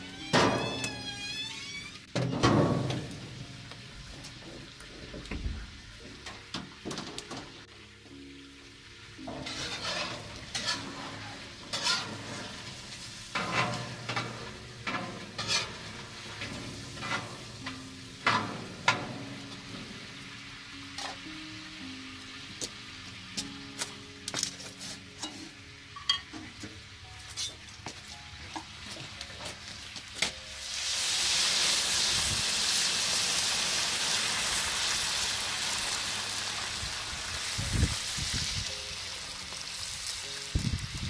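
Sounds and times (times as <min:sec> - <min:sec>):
food sizzling in pot: 0:00.0 - 0:04.7, 0:06.4 - 0:41.0
utensil scraping metal pot: 0:09.3 - 0:19.0.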